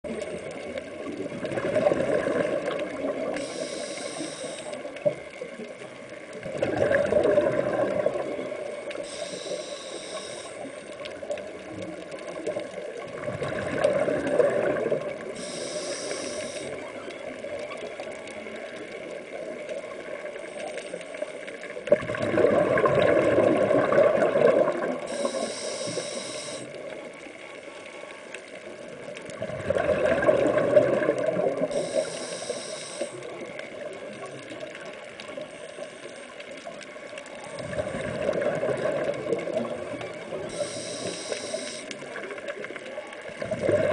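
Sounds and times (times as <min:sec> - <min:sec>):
hissing regulator inhalations: 0:03.4 - 0:04.9, 0:09.0 - 0:10.9, 0:15.4 - 0:16.8, 0:25.1 - 0:26.8, 0:31.7 - 0:33.3, 0:40.5 - 0:42.1
bubbling exhalations: 0:06.4 - 0:08.3, 0:21.9 - 0:25.0, 0:29.4 - 0:31.7, 0:43.4 - 0:43.9.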